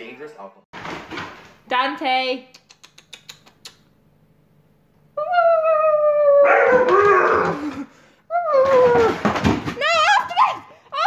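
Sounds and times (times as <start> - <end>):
puppy howling: 5.2 - 9.2.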